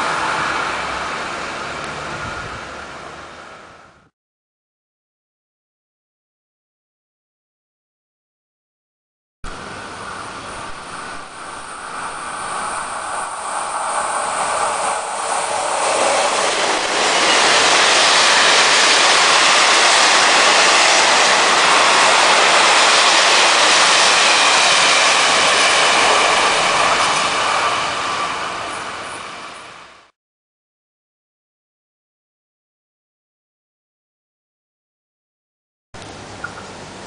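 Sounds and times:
train wheel and rail noise: 0.0 - 4.1, 9.4 - 30.2.

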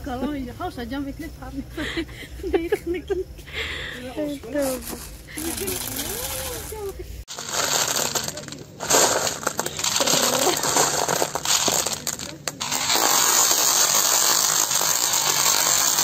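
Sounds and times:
gumballs clattering on metal scoop: 4.6 - 16.0.

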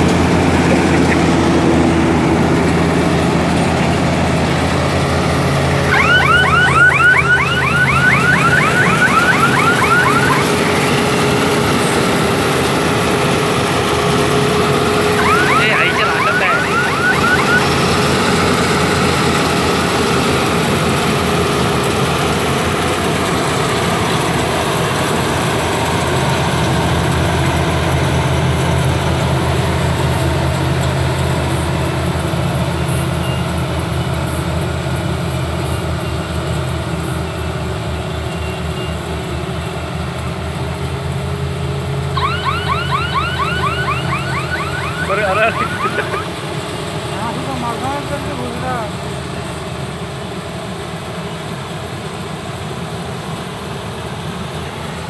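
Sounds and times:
combine harvester engine hum: 0.0 - 20.1
machinery whine: 0.1 - 19.7, 41.7 - 46.7
rising chirps: 5.9 - 10.9, 14.9 - 17.8, 42.2 - 46.3.

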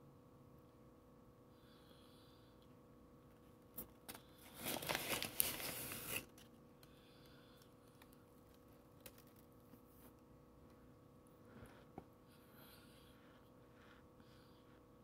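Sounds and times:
paper liner crinkling: 3.8 - 6.6.

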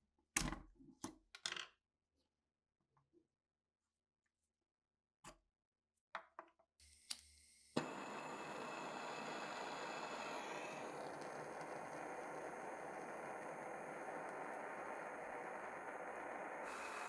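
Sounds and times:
gas torch igniting: 7.1 - 17.0
gas torch flame hissing: 7.7 - 17.0.

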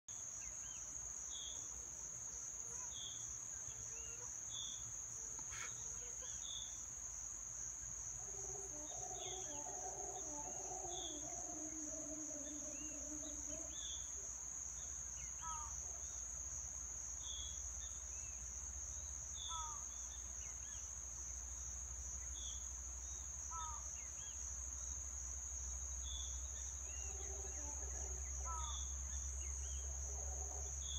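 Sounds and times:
high insect drone: 0.6 - 30.9
howler monkeys howling: 8.2 - 14.3, 26.8 - 30.9.

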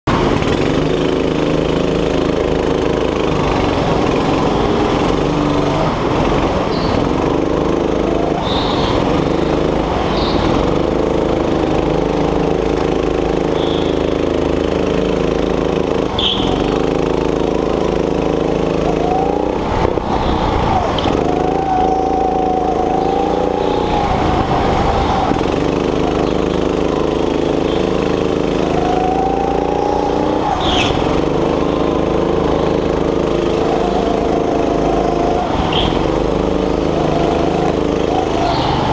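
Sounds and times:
go-kart engine revving: 0.0 - 38.9
short high squeaks: 16.1 - 16.8.

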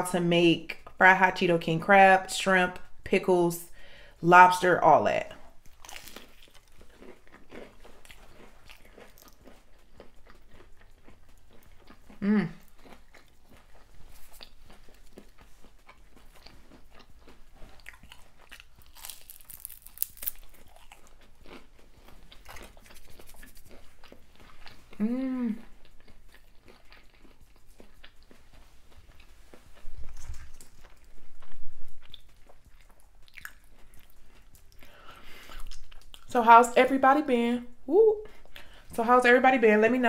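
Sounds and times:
person crunching and chewing: 5.5 - 36.3
person humming: 12.2 - 12.6, 25.0 - 25.6, 37.9 - 38.3.

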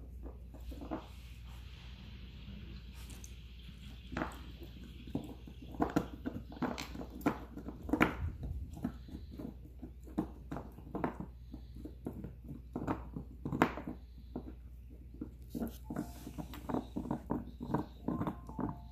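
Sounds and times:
puppy gnawing chew stick: 2.7 - 18.9.

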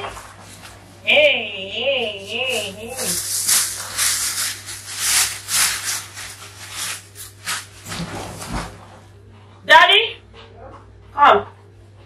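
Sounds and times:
plastic bag and sack rustling: 2.0 - 9.0.

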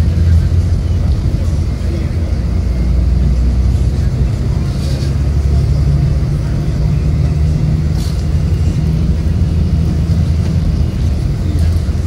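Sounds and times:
engine drone: 0.0 - 12.0
road noise inside vehicle: 0.0 - 12.0.

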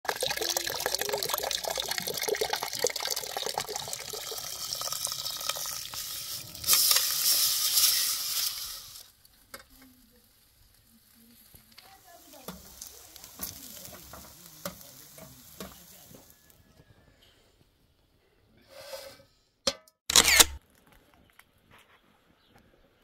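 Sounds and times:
water bubbling in a pot: 0.0 - 6.6
tap water splashing into pot: 0.1 - 6.1.

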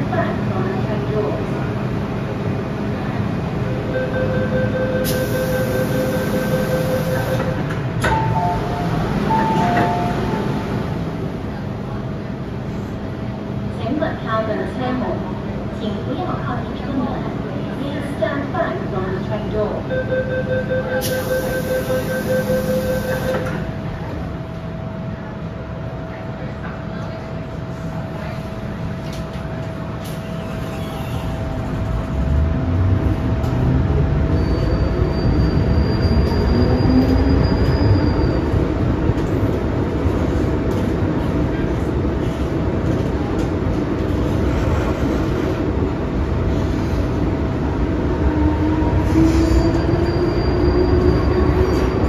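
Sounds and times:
standing train rumble: 0.0 - 52.0
door warning tone: 4.0 - 10.5
train doors shutting: 4.8 - 11.6, 20.8 - 24.0, 29.0 - 32.1
train doors shutting knock: 7.3 - 10.3.

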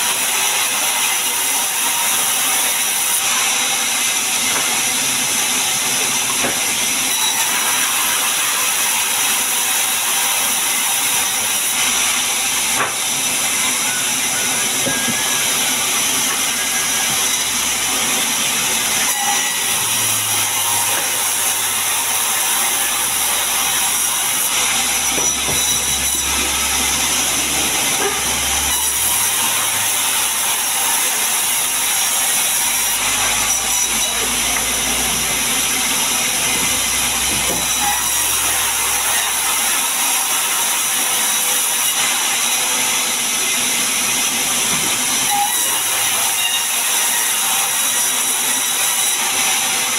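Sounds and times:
band saw cutting through log: 0.0 - 49.9.

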